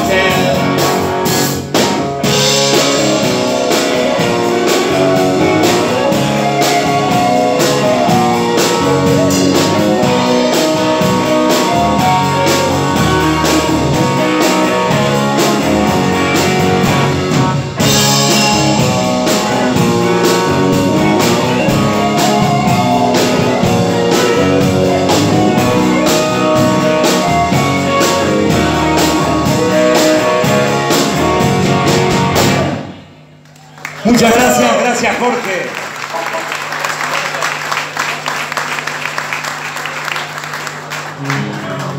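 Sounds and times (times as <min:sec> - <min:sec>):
drum kit beat: 0:00.0 - 0:33.3
electric guitars: 0:00.0 - 0:35.6, 0:36.3 - 0:41.9.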